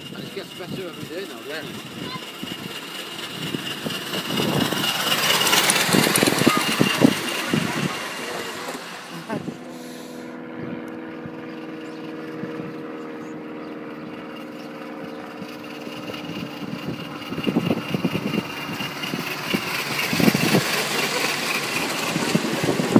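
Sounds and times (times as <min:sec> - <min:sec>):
steam hissing: 0:00.0 - 0:10.2, 0:17.4 - 0:22.9
steam locomotive exhaust beats: 0:00.0 - 0:10.4, 0:14.6 - 0:22.9
steady low hum: 0:00.0 - 0:22.9.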